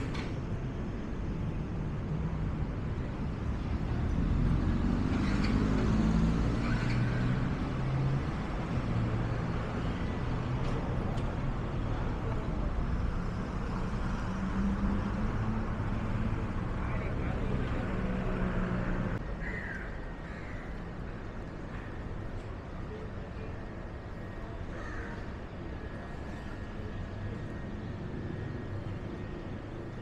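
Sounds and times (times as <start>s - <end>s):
road traffic rumble: 0.0s - 30.0s.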